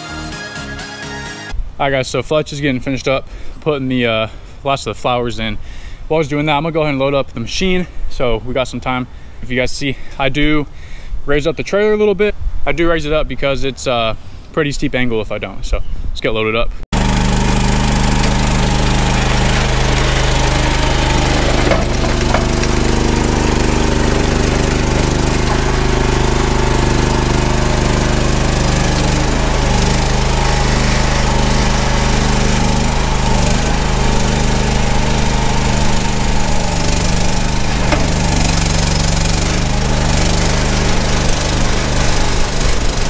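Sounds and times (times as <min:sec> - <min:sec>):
skid steer engine running: 0:17.0 - 0:43.0.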